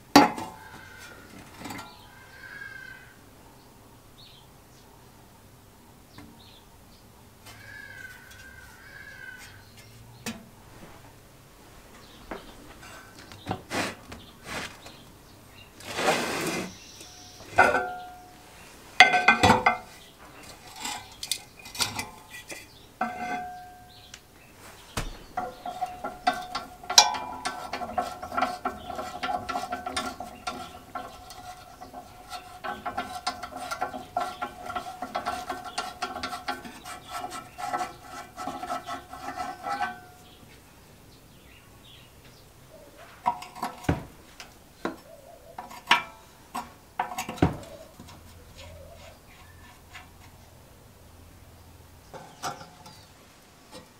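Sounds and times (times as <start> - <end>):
metal parts clanking: 17.5 - 18.3, 24.9 - 37.9
metallic ringing whirr with clicking: 25.4 - 31.4.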